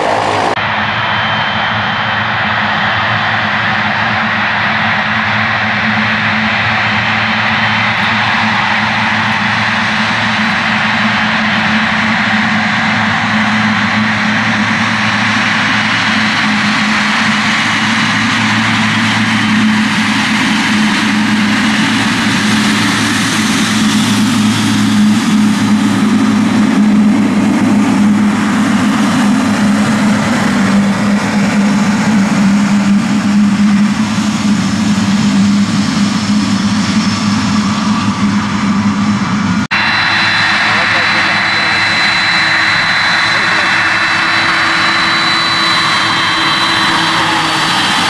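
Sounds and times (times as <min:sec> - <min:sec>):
faint high whine: 0:00.0 - 0:06.3, 0:35.6 - 0:48.0
jet engines droning: 0:00.0 - 0:48.0.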